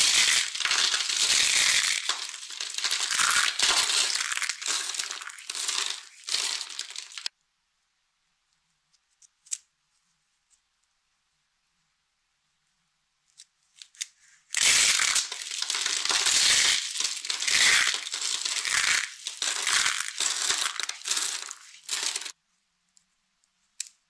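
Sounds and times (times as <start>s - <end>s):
soap crunching and crackling: 0.0s - 7.3s, 14.6s - 22.4s.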